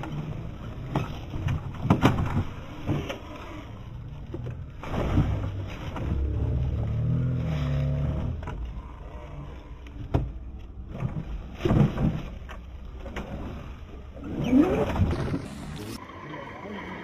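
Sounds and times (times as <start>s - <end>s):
electric motor and gears running: 14.8s - 16.0s.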